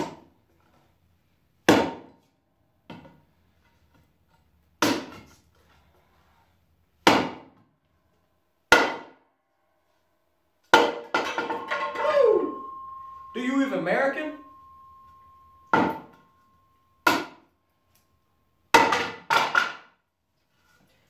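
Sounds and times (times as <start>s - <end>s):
hatchet chopping wood: 1.7s - 2.1s, 4.8s - 5.3s, 7.0s - 7.6s, 8.7s - 9.2s, 18.8s - 19.8s.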